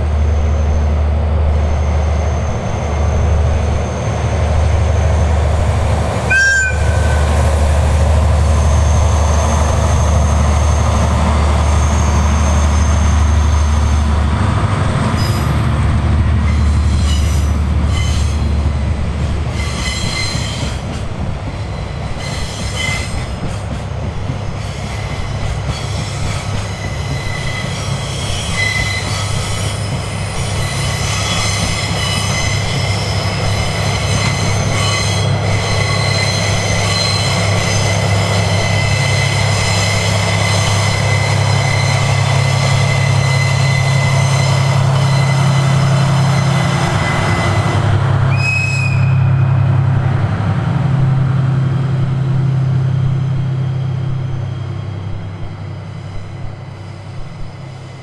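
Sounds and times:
diesel train engine drone: 0:00.0 - 0:58.0
wheel flange squeal: 0:06.3 - 0:14.1, 0:25.8 - 0:47.7.

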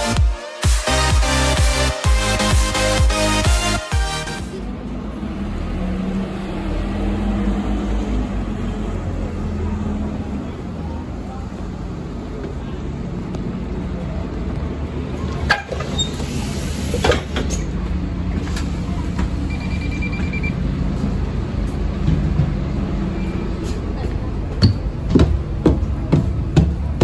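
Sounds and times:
bus diesel engine idling: 0:04.3 - 0:27.0
short high pulsing beep: 0:19.5 - 0:20.6.

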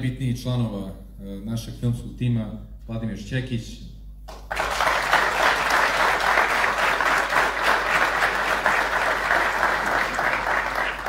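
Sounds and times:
audience applauding: 0:04.3 - 0:11.0.

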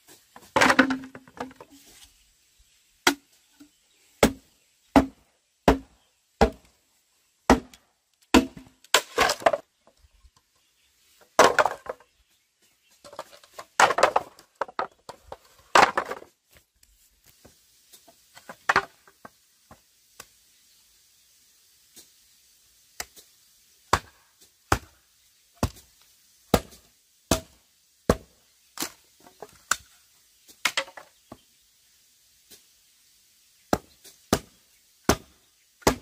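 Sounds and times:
blade chopping wood: 0:04.2 - 0:06.6, 0:07.5 - 0:09.6, 0:26.5 - 0:29.0, 0:33.7 - 0:36.0.

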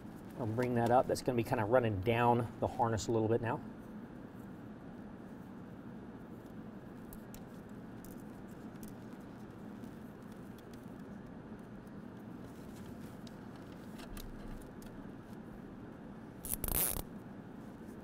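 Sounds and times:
clicks and rustles of handling: 0:06.4 - 0:15.4.

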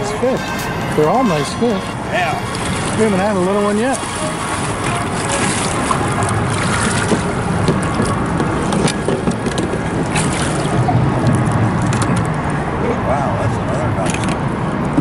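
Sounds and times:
steady rushing noise: 0:00.0 - 0:15.0
fish thrashing water splashing: 0:02.4 - 0:12.4.

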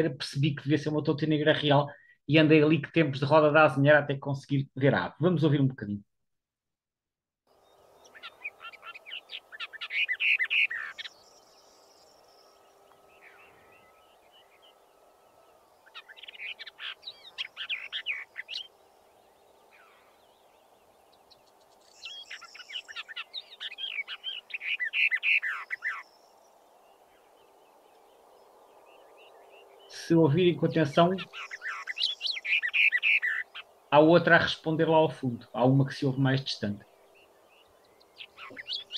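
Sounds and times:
steady low hiss: 0:07.5 - 0:32.6, 0:33.4 - 0:38.9
warbler singing: 0:07.5 - 0:38.9.

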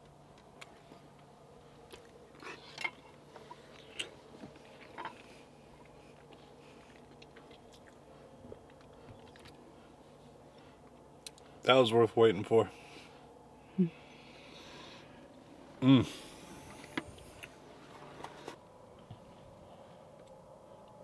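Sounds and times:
faint steady hum: 0:00.0 - 0:21.0
man chewing: 0:00.3 - 0:11.6.

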